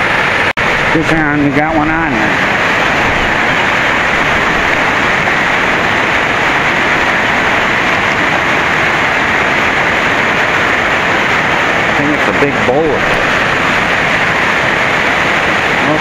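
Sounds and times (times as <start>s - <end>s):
light rain on water: 2.1s - 16.0s.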